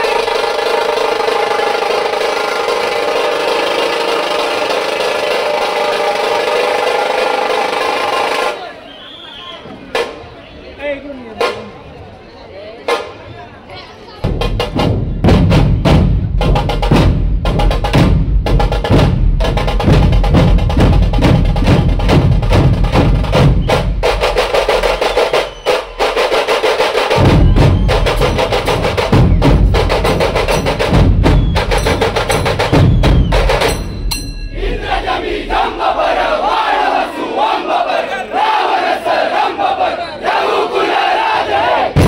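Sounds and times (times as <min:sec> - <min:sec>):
snare drum rolls: 0:00.0 - 0:08.6, 0:14.3 - 0:34.0
large barrel drums beaten: 0:14.2 - 0:36.8.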